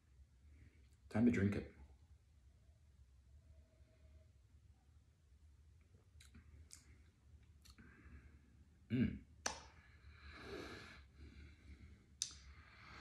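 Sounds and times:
wet lip and tongue smacks: 6.2 - 7.9, 12.2 - 12.5
throaty mm: 8.9 - 9.3.

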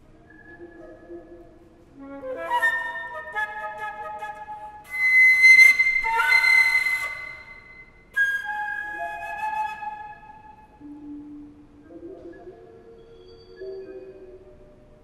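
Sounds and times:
solo flute playing: 2.0 - 11.4.

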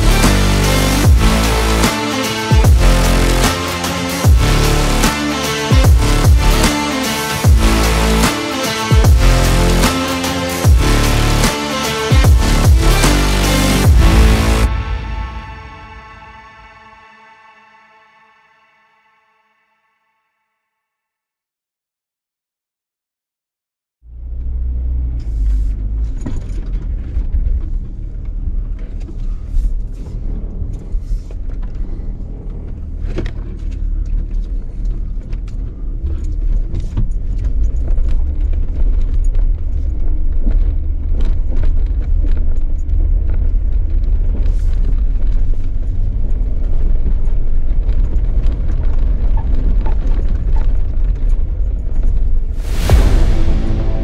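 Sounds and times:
off-road vehicle rumbling: 24.1 - 54.0.

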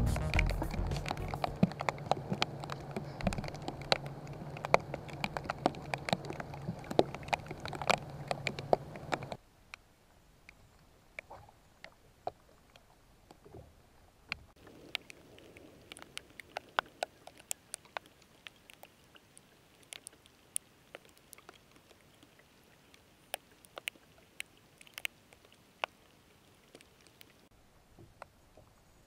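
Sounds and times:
raindrops tapping on camera housing: 0.0 - 9.4.

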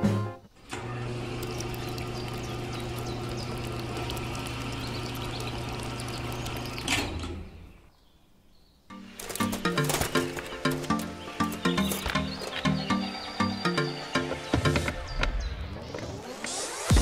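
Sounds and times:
small electric mixer motor humming: 0.8 - 6.9
mix churning in a drum: 1.0 - 6.9.

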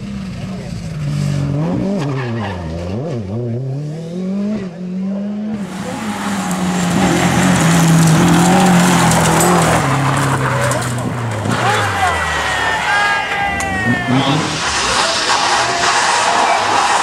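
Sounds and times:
rally car engine revving: 0.0 - 17.0
stones spraying: 5.6 - 11.0
tyres hissing on gravel: 5.6 - 13.3, 14.2 - 17.0.

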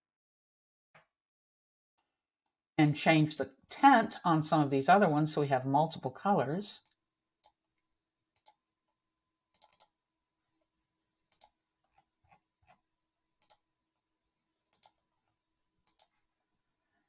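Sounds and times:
computer mouse clicks: 8.4 - 8.6, 9.5 - 10.0, 11.3 - 12.8, 13.4 - 13.7, 14.7 - 15.0, 15.8 - 16.2.

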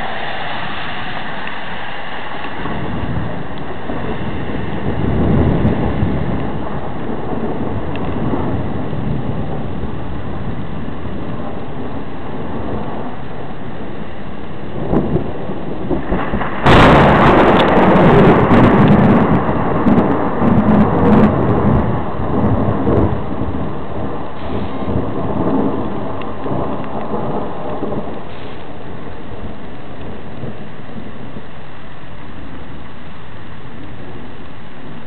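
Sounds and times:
thunder crack: 0.0 - 31.4
steady rain: 0.0 - 35.0
thunder rumbling: 0.0 - 35.0.

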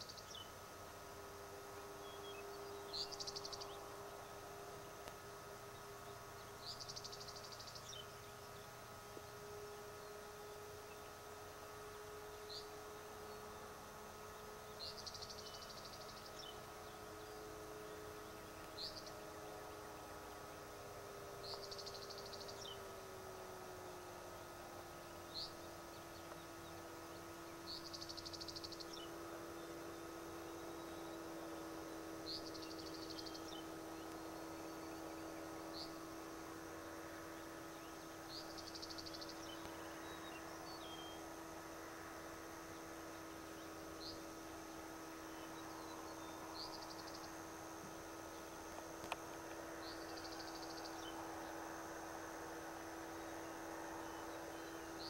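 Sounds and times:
faint steady hum: 0.0 - 55.0
songbird singing buzzy trill: 0.0 - 55.0.

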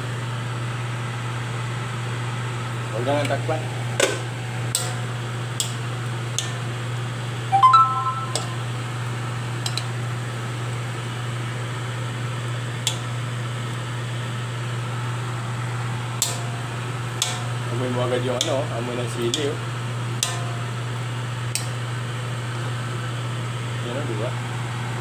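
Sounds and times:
brief pitched tone: 7.5 - 8.7.

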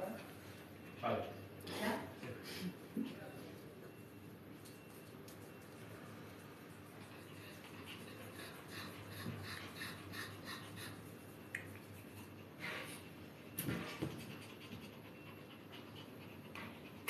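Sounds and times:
dog panting: 6.8 - 17.0.

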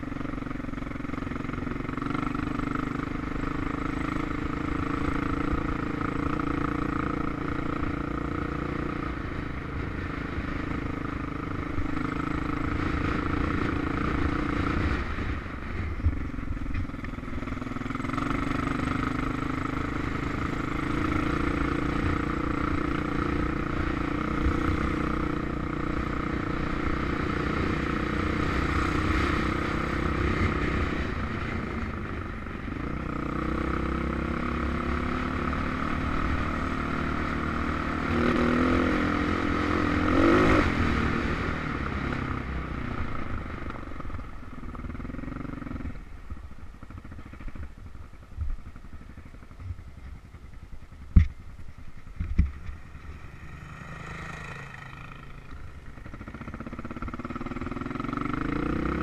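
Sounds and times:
motorcycle engine running: 0.0 - 59.0
rumble and clatter on gravel: 11.6 - 28.2, 40.2 - 57.8.

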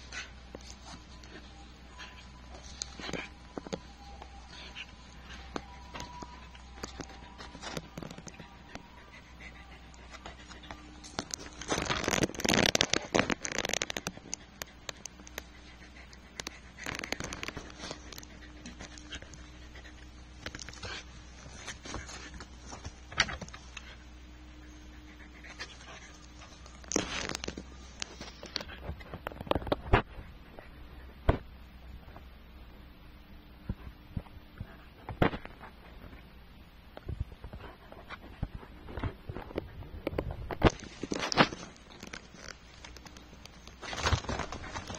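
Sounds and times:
faint steady hum: 0.0 - 44.9
animals scuffling in play: 37.5 - 44.9.

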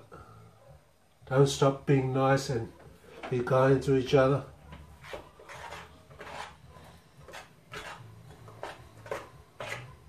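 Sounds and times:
metal spoon scraping a pan: 5.0 - 10.0.

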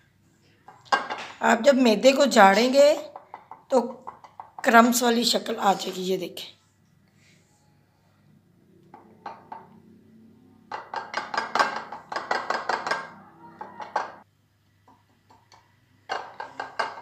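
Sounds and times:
taps and clinks on glass dish: 10.7 - 14.2.

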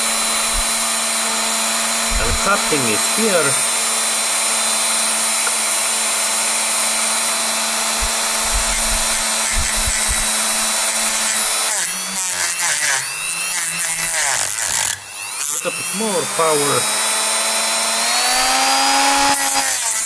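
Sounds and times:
rotary tool cutting wire: 0.0 - 3.6, 7.0 - 20.0.

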